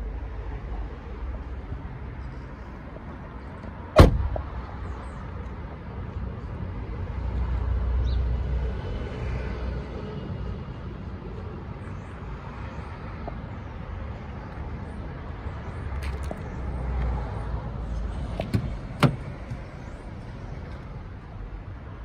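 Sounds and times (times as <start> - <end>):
car door latch clicking: 4.0 - 4.4, 18.3 - 19.7.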